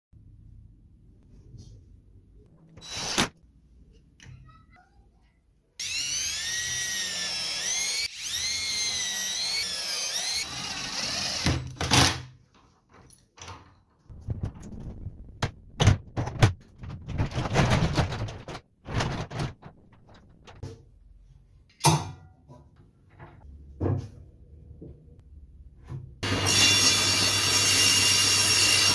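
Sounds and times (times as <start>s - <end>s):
power drill driving screws: 2.8s - 3.3s, 5.8s - 12.2s
wood and metal hardware clattering: 15.8s - 20.8s.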